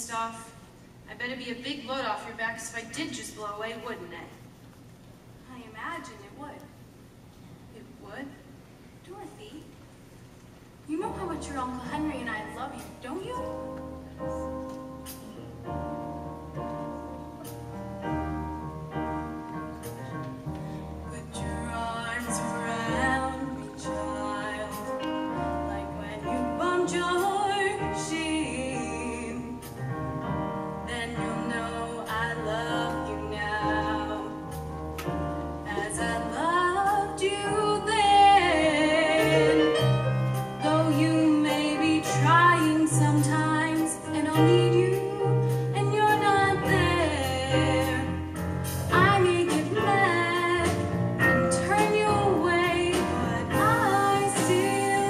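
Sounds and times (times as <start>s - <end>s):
instrumental accompaniment: 11.0s - 55.0s
woman singing ballad: 21.0s - 29.7s, 30.8s - 34.6s, 35.6s - 40.0s, 40.6s - 55.0s.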